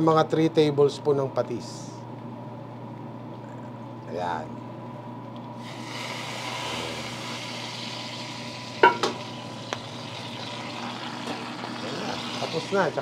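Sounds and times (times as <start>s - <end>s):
pan sizzling: 5.6s - 13.0s.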